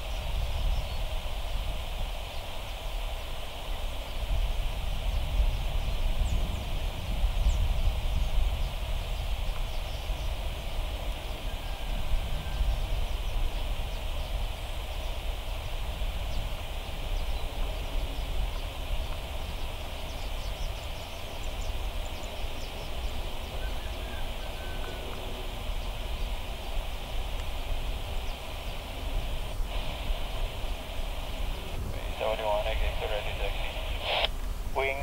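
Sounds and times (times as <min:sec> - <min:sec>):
high-pitched hiss: 0:00.0 - 0:35.0
bird chirp: 0:16.2 - 0:25.1.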